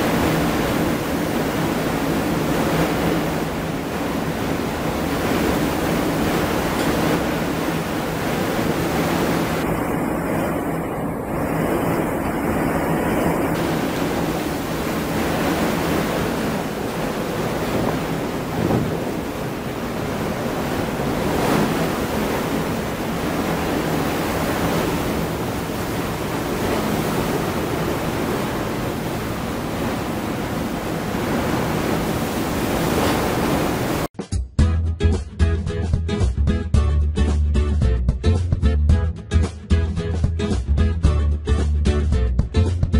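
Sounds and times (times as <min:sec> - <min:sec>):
heavy seas breaking: 0:00.0 - 0:34.1
wind blowing across microphone: 0:00.0 - 0:34.1.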